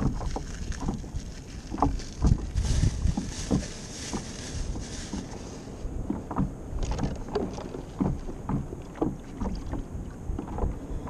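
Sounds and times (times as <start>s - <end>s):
small waves slapping a hull: 0.0s - 11.0s
wind on microphone: 0.0s - 11.0s.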